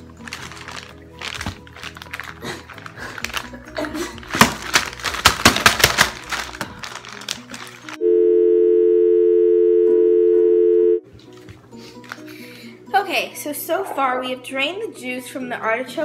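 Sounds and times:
faint background music: 0.0s - 8.5s, 9.1s - 16.0s
two-note electronic tone: 8.0s - 11.0s.

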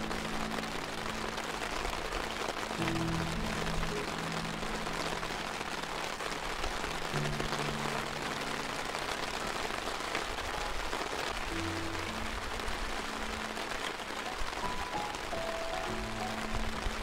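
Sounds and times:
low background music notes: 0.0s - 9.8s, 11.4s - 17.0s
steady rain falling: 0.0s - 17.0s.

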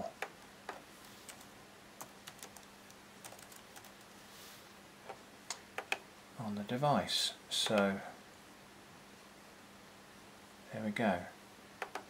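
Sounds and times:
computer keyboard typing: 0.2s - 4.1s, 11.8s - 12.0s.

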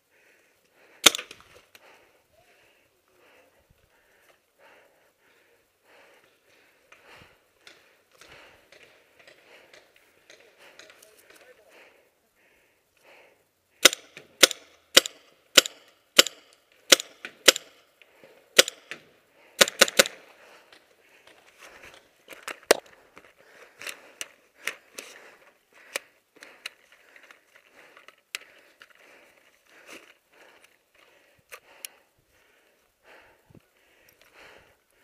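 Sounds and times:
paintball markers firing: 1.0s - 1.6s, 13.8s - 17.8s, 18.6s - 19.0s, 19.6s - 20.3s.

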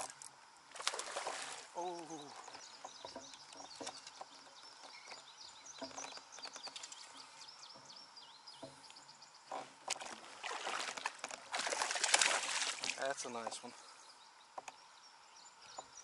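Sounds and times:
birds chirping and singing: 1.8s - 10.2s, 13.0s - 16.0s.

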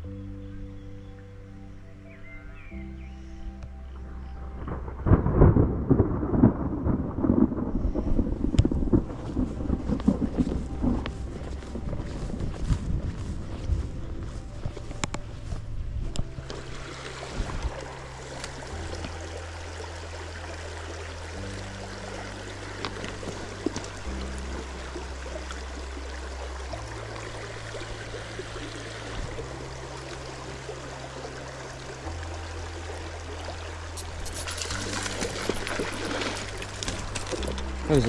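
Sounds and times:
music with slow bass line: 0.0s - 38.0s
river water running: 8.6s - 38.0s.

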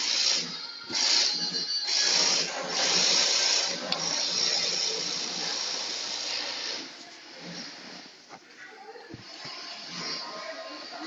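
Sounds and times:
sewing machine whirring: 0.0s - 8.3s.

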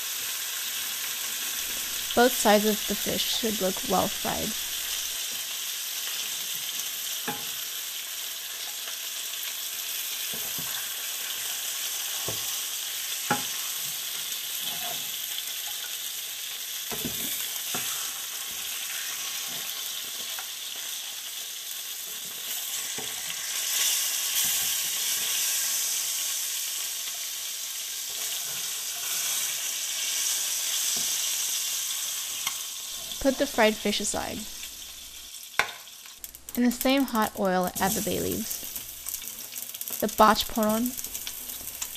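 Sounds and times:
fish sizzling in oil: 0.0s - 41.9s.

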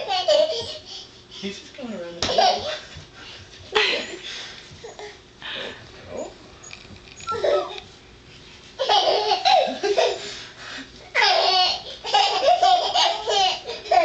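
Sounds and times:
baby laughing: 0.0s - 0.9s, 7.3s - 7.8s, 8.8s - 10.3s, 11.1s - 14.0s.

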